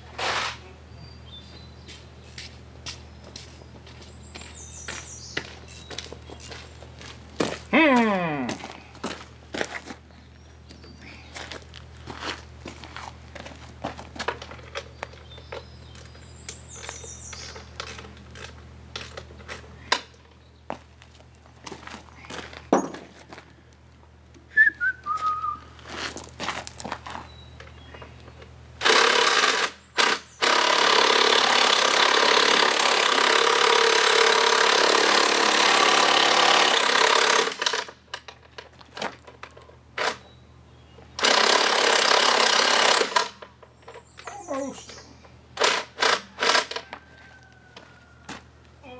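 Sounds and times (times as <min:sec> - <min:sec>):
power tool running: 0:28.8 - 0:38.0, 0:41.2 - 0:43.5.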